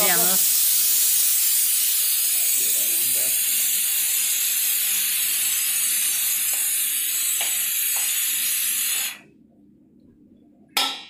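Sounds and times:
loud steady hiss: 0.0 - 9.2.

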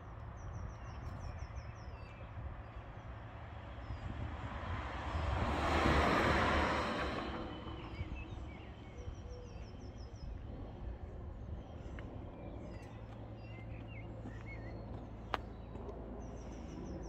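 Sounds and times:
small birds chirping: 7.8 - 17.0.

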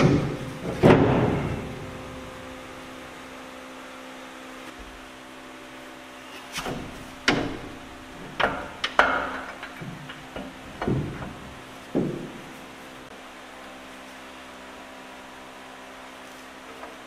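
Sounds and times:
faint steady hum: 0.0 - 17.0
metal hardware knocks and clanks: 7.2 - 12.5.

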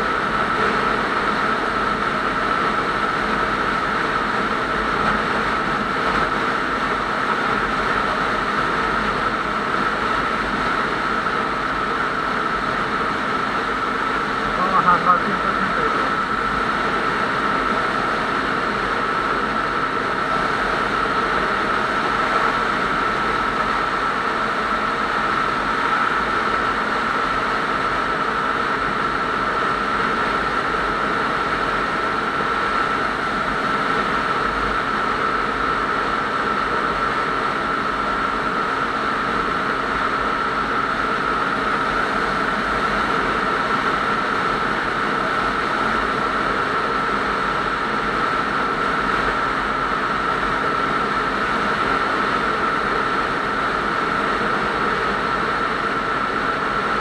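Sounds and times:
motorcycle engine drone: 10.8 - 24.8
high-pitched tone: 14.6 - 16.2.

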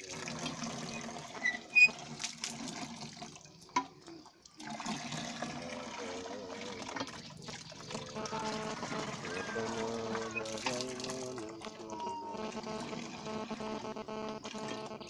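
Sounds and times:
water gushing into plastic tub: 0.0 - 15.0
pump handle squeaking: 0.8 - 2.6, 7.0 - 12.1.

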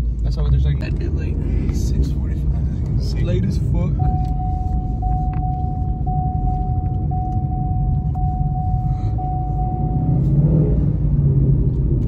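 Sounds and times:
car engine and road noise: 0.0 - 12.0
pulsing mid-pitched tone: 4.0 - 10.3.

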